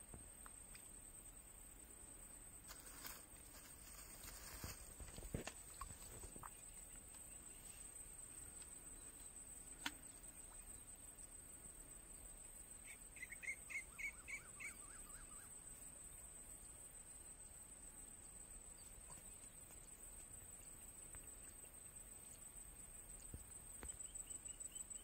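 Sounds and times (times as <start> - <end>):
bird calling: 12.8 - 15.5.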